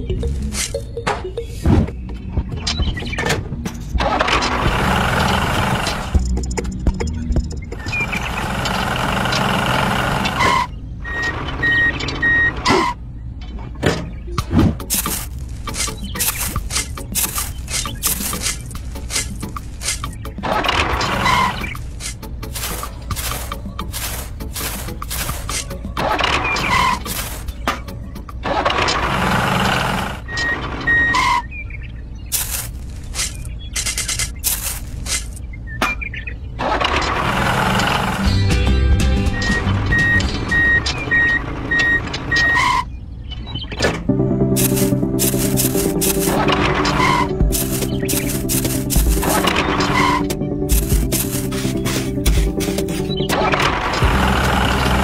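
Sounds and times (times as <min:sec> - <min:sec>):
steady engine-like noise: 0:03.9 - 0:13.4, 0:14.9 - 0:27.6, 0:28.4 - 0:31.4, 0:36.5 - 0:38.7, 0:44.2 - 0:55.0
truck reversing alarm beeps: 0:10.4 - 0:13.0, 0:30.2 - 0:31.4, 0:39.3 - 0:42.8
shovel scraping sand in plastic: 0:14.9 - 0:20.1, 0:21.2 - 0:25.7, 0:26.7 - 0:27.6, 0:32.3 - 0:33.5, 0:34.4 - 0:35.4, 0:44.6 - 0:53.2
low engine-like hum: 0:44.1 - 0:55.0.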